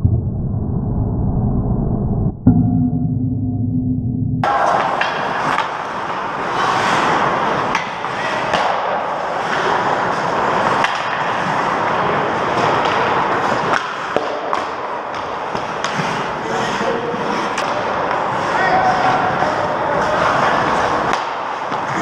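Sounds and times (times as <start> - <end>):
hockey sticks and puck clacking: 4.4 - 22.0
skates scraping ice: 4.5 - 22.0.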